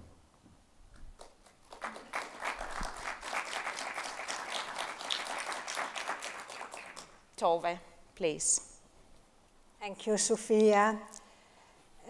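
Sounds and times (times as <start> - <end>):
audience applauding: 1.2 - 7.2.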